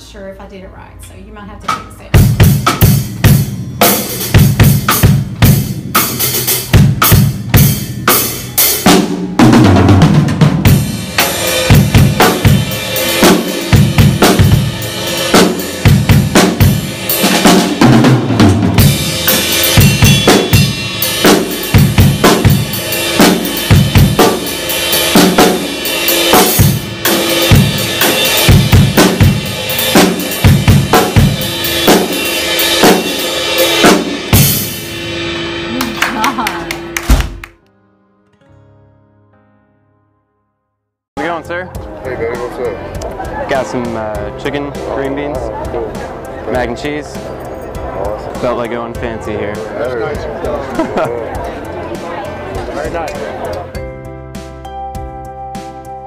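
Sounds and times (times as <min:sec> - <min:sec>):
drum kit played fast: 0:01.4 - 0:37.6, 0:41.2 - 0:56.0.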